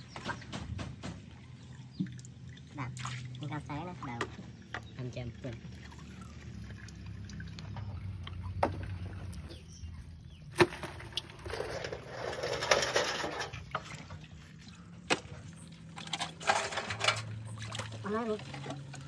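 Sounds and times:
metal sheets scraping in water: 10.6s - 14.4s, 15.8s - 19.0s.

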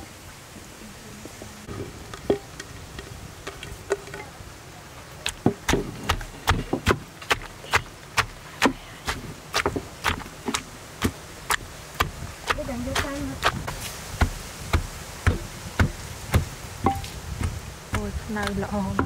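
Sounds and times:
pestle pounding in mortar: 5.2s - 19.0s.

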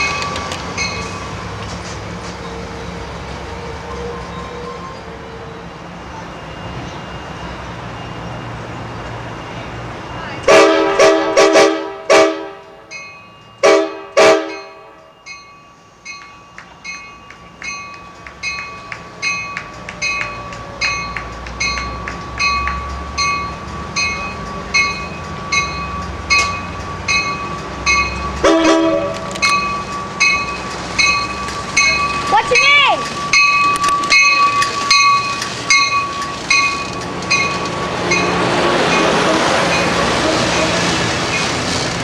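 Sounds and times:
train bell ringing: 0.0s - 1.7s, 3.5s - 10.6s, 12.5s - 41.6s
low train rumble: 0.0s - 42.0s
train horn blasts: 10.5s - 12.8s, 13.6s - 15.0s, 28.4s - 29.3s, 39.0s - 41.0s.

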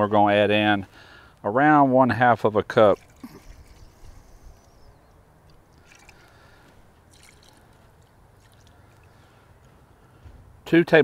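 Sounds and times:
liquid trickling into a foil pan: 2.7s - 4.0s, 5.7s - 9.1s.

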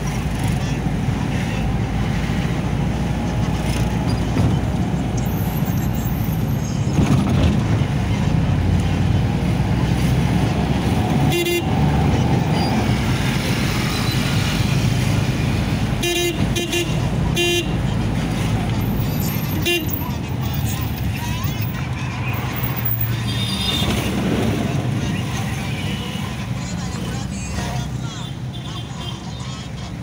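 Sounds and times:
engine and road noise in cabin: 0.0s - 30.0s
vehicle horn toots: 11.2s - 11.8s, 16.0s - 17.8s.

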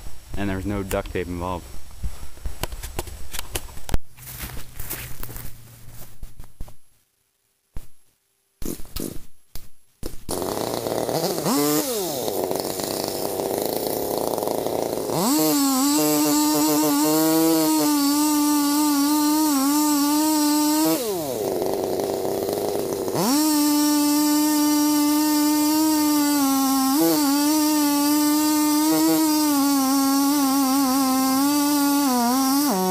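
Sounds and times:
chainsaw engine revving: 10.3s - 32.9s.

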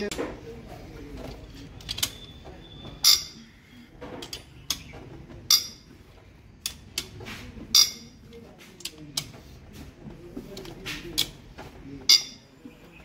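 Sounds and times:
socket wrench clicking: 4.2s - 4.9s, 6.6s - 7.2s.

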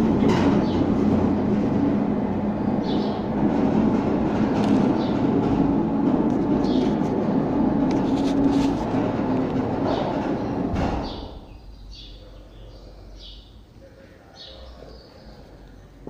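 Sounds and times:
sliding gate rumbling on track: 0.0s - 11.8s.

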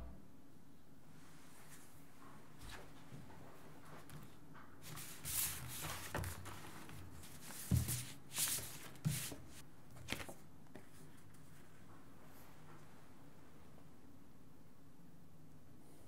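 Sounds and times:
photo prints rustling and sliding: 4.8s - 11.7s.

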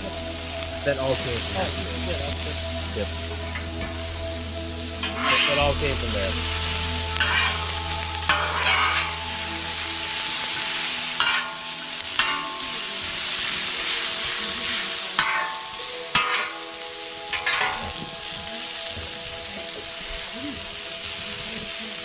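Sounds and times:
peppers sizzling on a griddle: 0.0s - 22.0s
metal spatula scraping steel plate: 5.0s - 5.6s, 7.2s - 7.6s, 8.3s - 9.2s, 15.2s - 16.6s.

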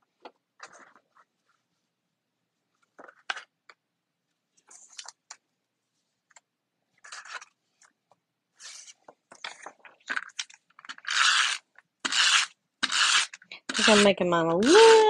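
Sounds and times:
paper rustling and sliding: 8.6s - 11.4s.

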